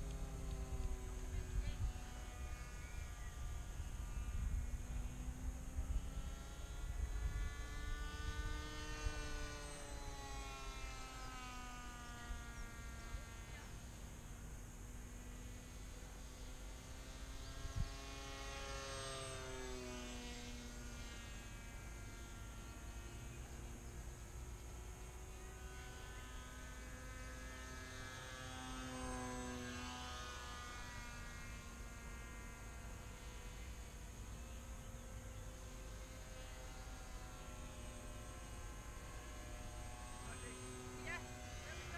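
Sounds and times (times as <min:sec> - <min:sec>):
model plane motor buzzing overhead: 0:00.0 - 0:41.9.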